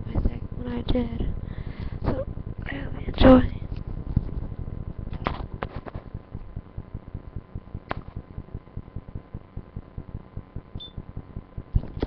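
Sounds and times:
camera handling rumble: 3.7s - 6.5s, 11.7s - 12.0s
sharp clicks: 7.8s - 8.3s.

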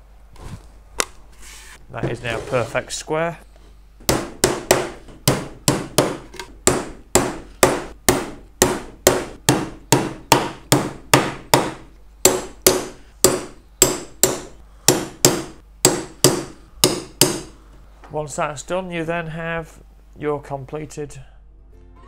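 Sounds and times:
hammer driving nails into wood: 4.1s - 17.5s.

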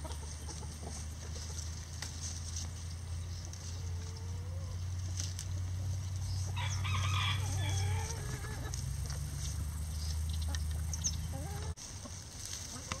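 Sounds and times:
chickens clucking: 0.0s - 13.0s
rooster crowing: 6.5s - 8.7s.

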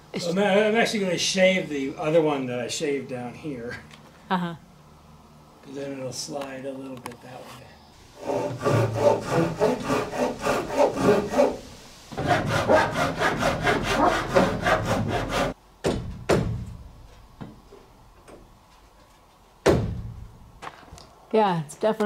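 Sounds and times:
hand saw cutting wood: 8.2s - 15.6s
sharp knocks on wood: 15.8s - 16.8s, 19.6s - 20.8s.

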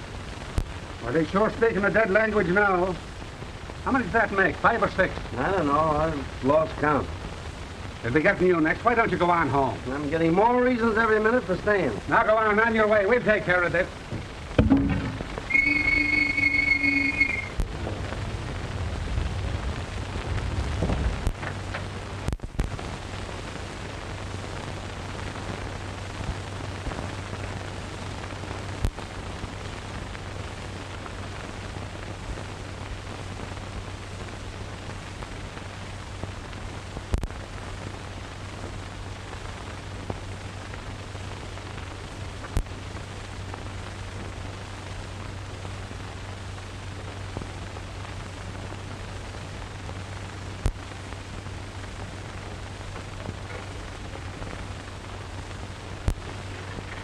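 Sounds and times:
film soundtrack hiss and hum: 0.0s - 57.0s
sharp clicks and pops: 20.8s - 22.8s.

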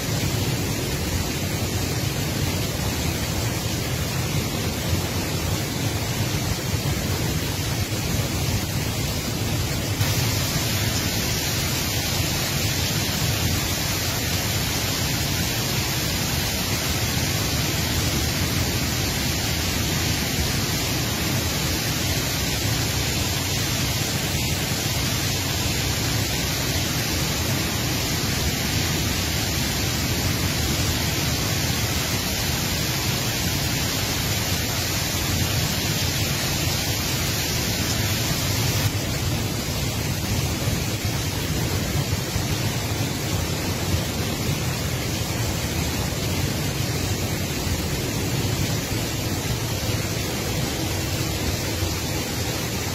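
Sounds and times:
rain falling steadily: 0.0s - 52.9s.

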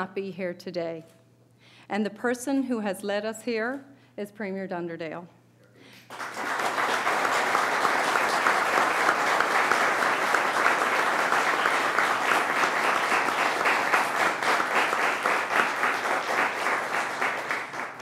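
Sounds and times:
crowd applauding: 6.0s - 18.0s.

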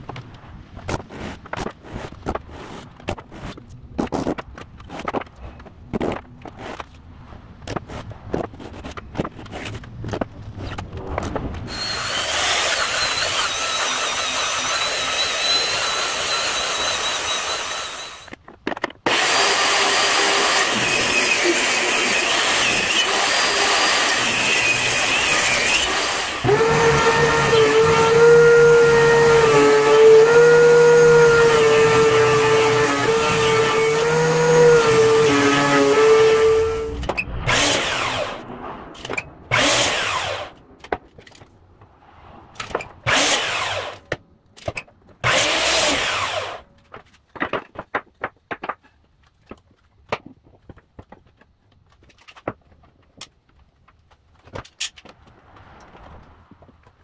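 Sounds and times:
thickness planer droning: 11.0s - 18.4s, 19.1s - 41.0s, 42.6s - 44.2s, 45.2s - 46.6s
belt sander whining: 19.1s - 38.4s, 39.5s - 40.6s.

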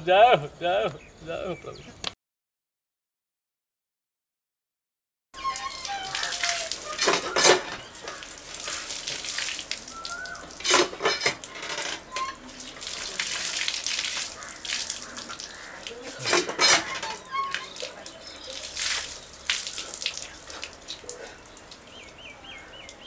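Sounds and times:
hand pump metal clanking: 5.4s - 8.3s, 10.5s - 13.7s, 16.0s - 18.4s
water splashing on concrete: 5.4s - 23.0s.

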